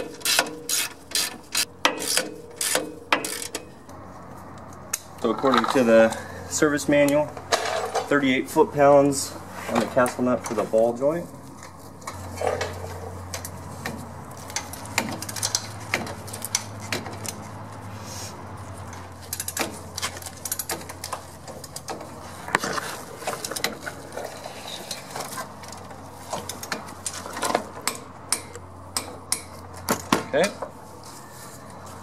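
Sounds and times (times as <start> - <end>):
ratchet wrench clicking: 0.2 - 3.6, 19.2 - 20.8.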